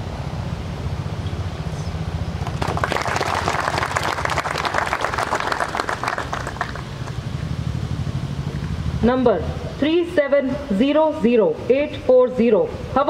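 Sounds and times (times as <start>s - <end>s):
audience applauding: 2.4s - 7.2s.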